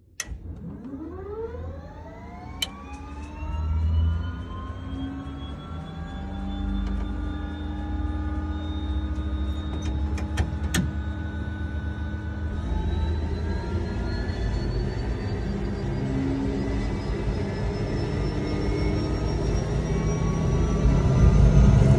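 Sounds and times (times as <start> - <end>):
engine rumble: 0.2 - 21.9
turbine whine rising in pitch: 0.3 - 21.9.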